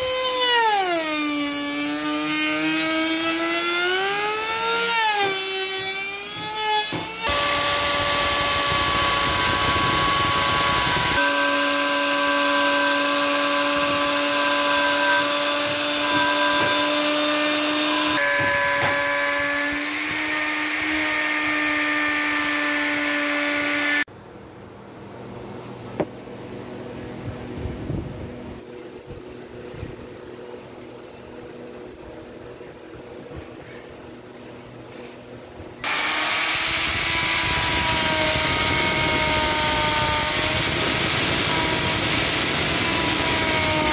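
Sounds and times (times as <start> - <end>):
power tool motor whine: 0.0 - 24.1, 35.8 - 43.9.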